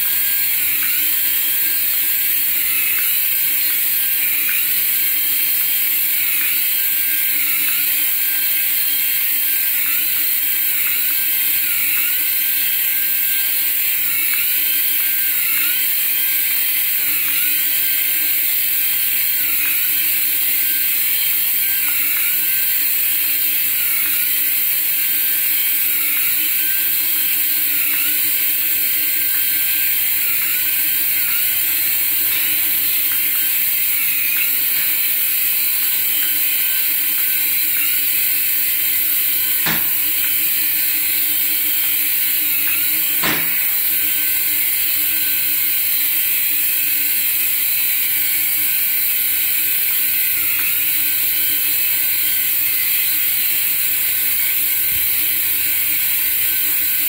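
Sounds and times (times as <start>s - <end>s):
toy helicopter motors whining: 0.0s - 57.0s
rotors buzzing: 25.4s - 45.0s.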